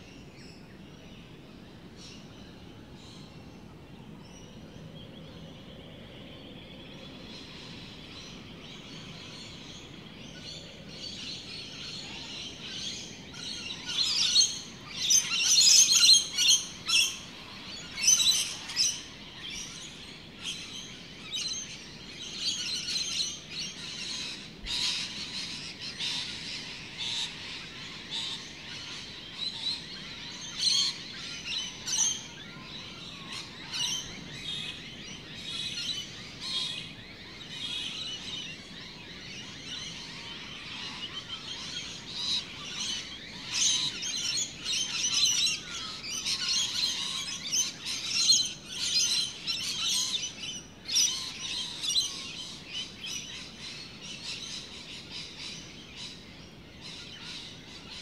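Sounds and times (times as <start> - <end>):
birds chirping and calling: 2.0 - 58.0.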